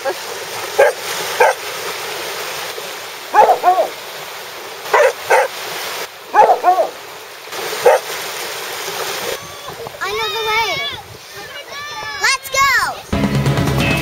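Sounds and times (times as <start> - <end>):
small waves washing: 0.0 - 13.1
dog barking: 0.8 - 1.6, 3.3 - 4.0, 4.9 - 5.6, 6.3 - 7.0, 7.8 - 8.1.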